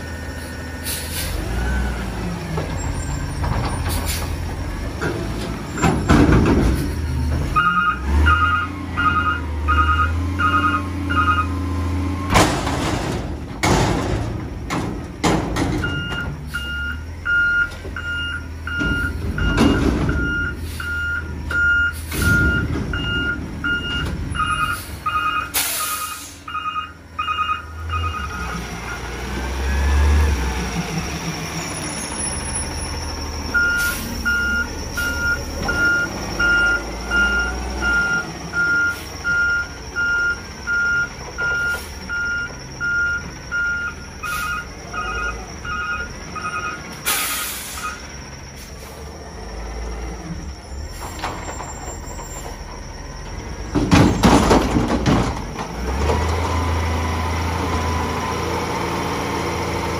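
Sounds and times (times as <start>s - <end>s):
backup alarm beeping: 7.6s - 11.6s, 15.8s - 29.1s, 33.5s - 47.0s.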